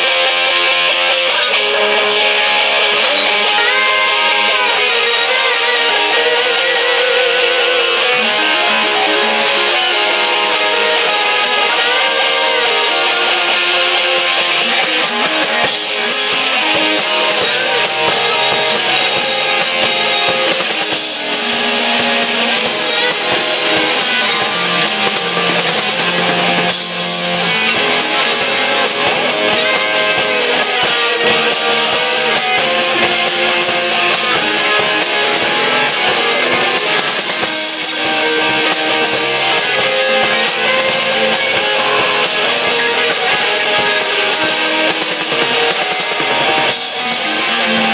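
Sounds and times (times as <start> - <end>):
rock band playing: 0.0 - 47.9
drum and cymbal hits: 5.8 - 47.9.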